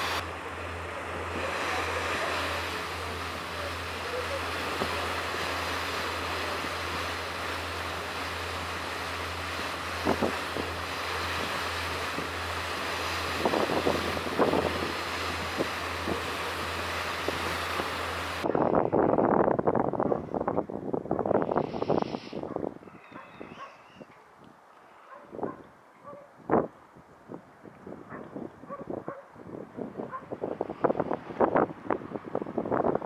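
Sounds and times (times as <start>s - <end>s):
steady hiss: 0.0s - 0.3s
constant low hum: 0.0s - 18.9s
gusty wind buffeting: 4.8s - 23.6s, 26.4s - 33.0s
wind on microphone: 8.6s - 24.2s, 25.1s - 33.0s.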